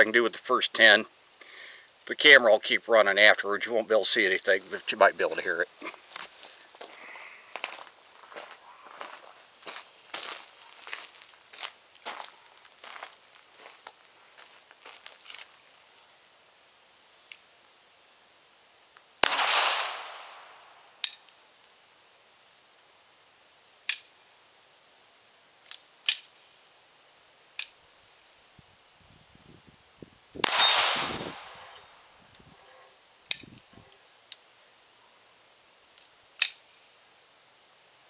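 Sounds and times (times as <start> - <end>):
pistol shots: 19.2 - 20.8, 30.4 - 32.0.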